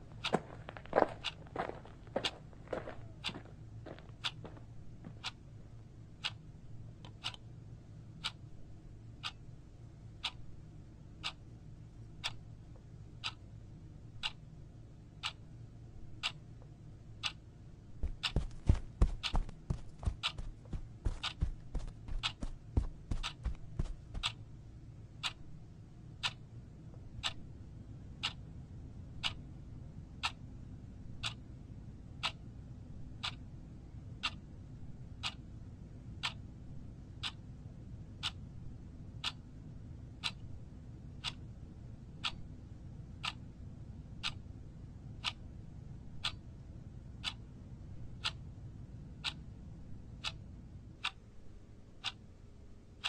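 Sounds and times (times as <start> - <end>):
low steady hum: 0.0 - 53.0
clock ticking: 7.1 - 7.4, 14.2 - 14.4, 17.2 - 17.4, 18.0 - 24.4.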